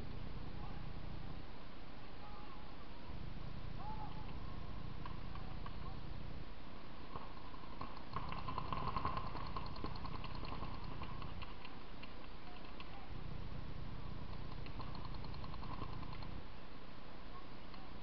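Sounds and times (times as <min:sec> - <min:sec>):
paintball markers popping: 0:07.8 - 0:13.0, 0:14.3 - 0:16.4.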